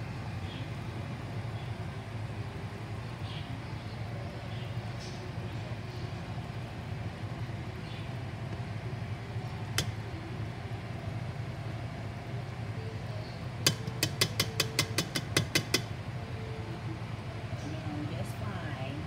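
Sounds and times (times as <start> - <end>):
steady low hum: 0.0 - 19.0
pot simmering: 5.7 - 17.5
tongs clicking in steel pot: 13.6 - 15.9.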